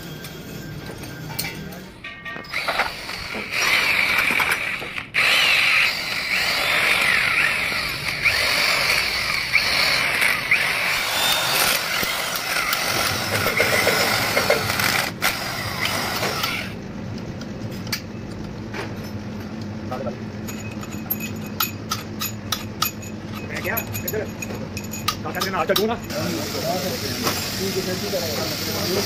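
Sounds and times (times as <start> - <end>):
power tool rattling with squeal: 2.5 - 16.8.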